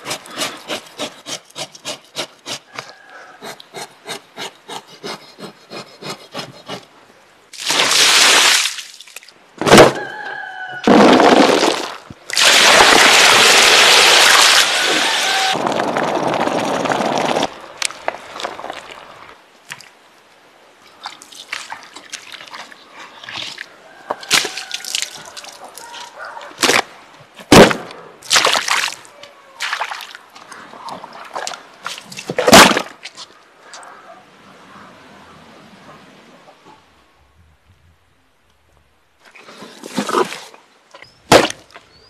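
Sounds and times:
water rushing over quicklime: 0:07.5 - 0:09.2, 0:11.2 - 0:15.6
wet splashes and slaps: 0:07.5 - 0:09.3, 0:24.3 - 0:25.8, 0:28.2 - 0:29.0, 0:29.6 - 0:30.2.

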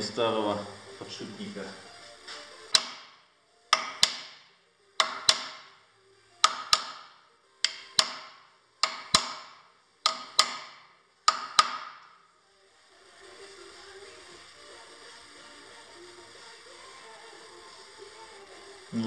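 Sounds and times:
hammer striking metal: 0:02.7 - 0:04.4, 0:05.0 - 0:05.7, 0:06.4 - 0:12.1.

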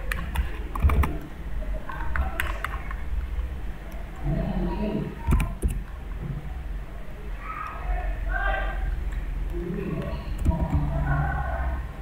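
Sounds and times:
computer keyboard keystrokes: 0:00.0 - 0:01.3, 0:02.0 - 0:03.3, 0:05.2 - 0:05.9
low steady hum: 0:00.0 - 0:12.0.

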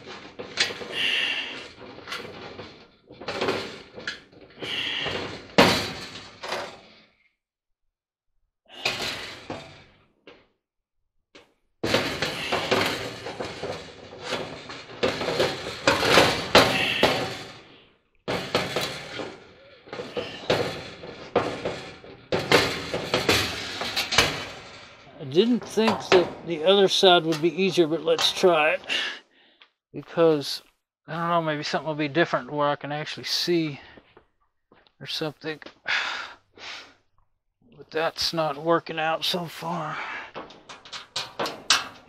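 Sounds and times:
metal clattering and scraping: 0:00.0 - 0:07.1, 0:08.7 - 0:10.0, 0:11.8 - 0:29.1, 0:37.8 - 0:42.0.

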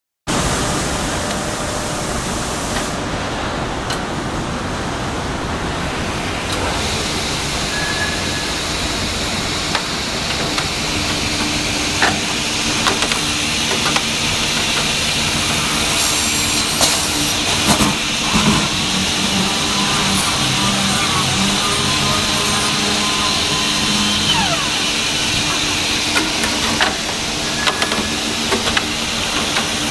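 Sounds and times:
steady machine hum: 0:00.3 - 0:29.9
wood milling machine running: 0:08.4 - 0:29.9.

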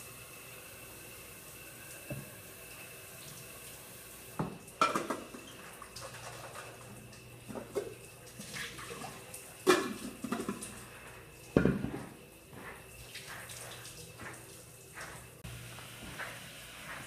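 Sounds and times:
steady hiss: 0:09.4 - 0:17.0.

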